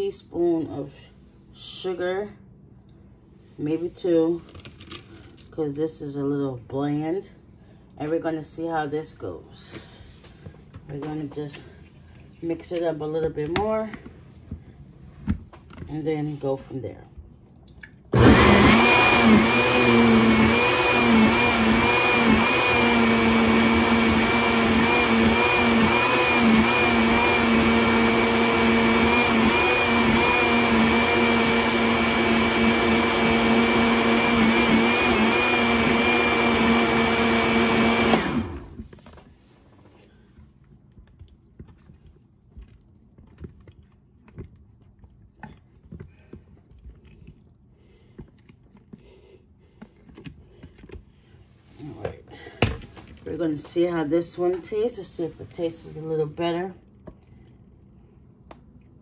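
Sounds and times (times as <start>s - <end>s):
countertop blender running: 18.1s - 38.9s.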